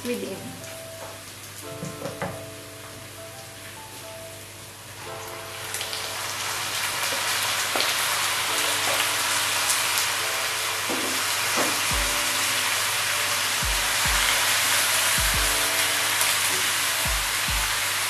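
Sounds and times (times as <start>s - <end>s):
squid sizzling in hot oil: 5.8s - 18.0s.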